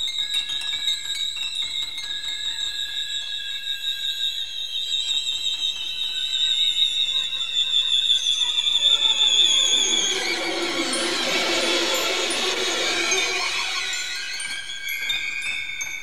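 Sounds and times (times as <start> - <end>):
high sustained orchestral tones: 8.4 - 16.0
low orchestral sounds: 9.0 - 15.0.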